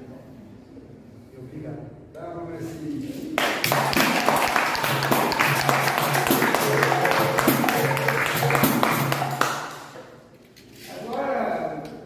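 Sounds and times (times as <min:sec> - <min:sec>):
hand clapping: 0:03.4 - 0:10.1.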